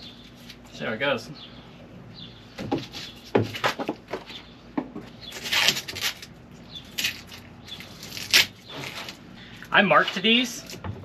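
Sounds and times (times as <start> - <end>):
plastic containers rustling and scraping: 6.9 - 11.0.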